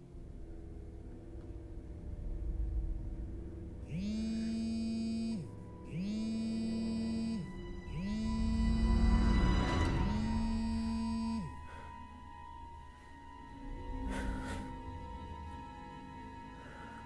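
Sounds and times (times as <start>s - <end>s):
low drone: 0.0s - 17.0s
smartphone vibrating buzz: 3.9s - 9.3s, 9.9s - 11.6s.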